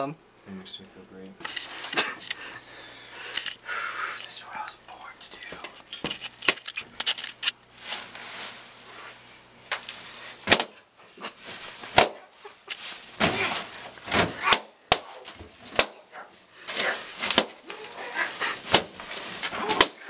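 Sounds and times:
balloons rustling and squeaking: 0:10.4 - 0:20.0
balloons popping: 0:11.9 - 0:12.3, 0:13.2 - 0:16.0, 0:17.2 - 0:17.8.

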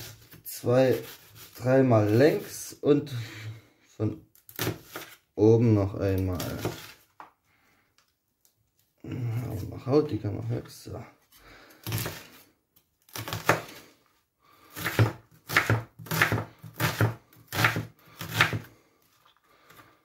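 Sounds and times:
knife chopping onion on wooden board: 0:04.6 - 0:05.2, 0:06.3 - 0:06.9, 0:11.8 - 0:12.3, 0:13.1 - 0:13.8, 0:14.7 - 0:18.7.

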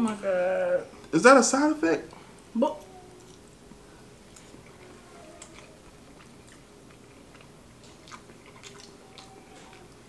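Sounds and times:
faint chewing: 0:02.1 - 0:10.0.

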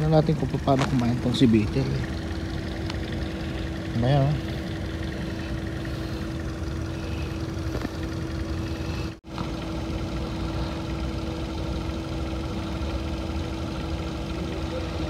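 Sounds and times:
machine hum: 0:00.0 - 0:15.0.

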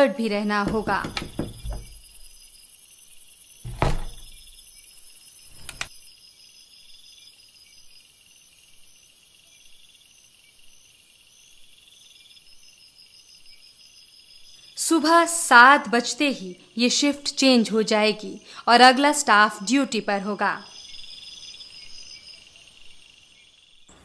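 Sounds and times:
crickets chirping: 0:00.0 - 0:24.0
dull thump: 0:00.6 - 0:02.1, 0:03.7 - 0:04.4
sharp click: 0:05.6 - 0:05.9.

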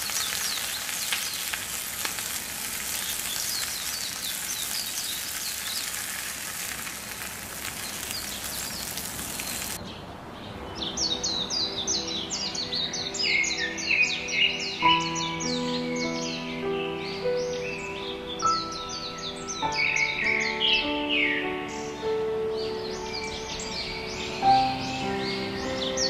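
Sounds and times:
food sizzling in a clay pot: 0:00.0 - 0:09.8
birds chirping: 0:00.0 - 0:26.0
music with bird calls: 0:09.4 - 0:26.0.

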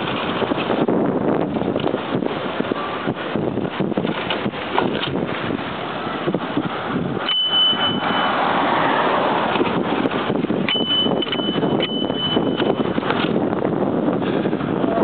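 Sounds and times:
bicycle knocking and rattling: 0:00.0 - 0:05.5, 0:09.4 - 0:13.6
wind rushing over microphone: 0:00.0 - 0:15.0
thin high squeal: 0:07.2 - 0:09.2.

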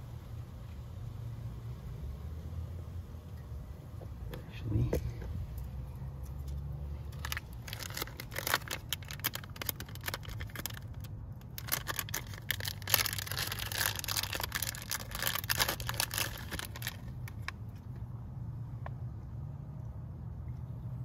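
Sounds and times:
low steady hum: 0:00.0 - 0:21.0
plastic bag crinkling: 0:07.1 - 0:17.9.

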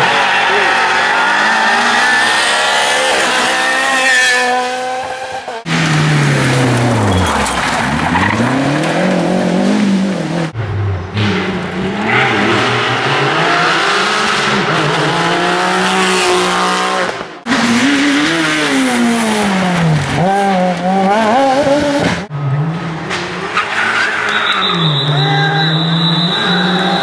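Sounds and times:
rally car engines revving hard: 0:00.0 - 0:27.0.

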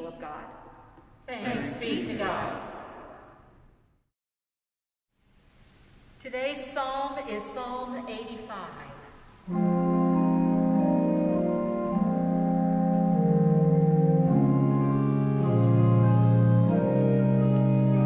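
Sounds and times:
church organ chords: 0:09.5 - 0:18.0.

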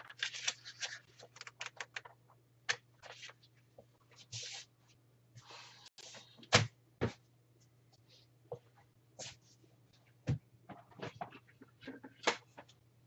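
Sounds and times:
paper booklet rustling: 0:00.0 - 0:02.3.

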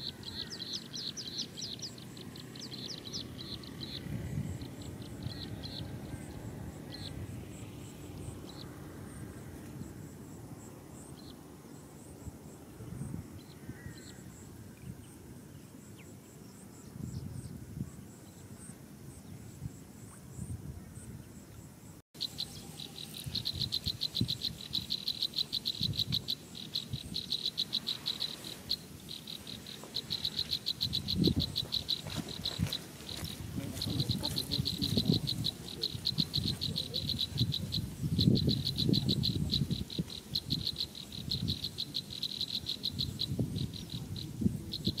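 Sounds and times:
insects trilling: 0:00.0 - 0:45.0.

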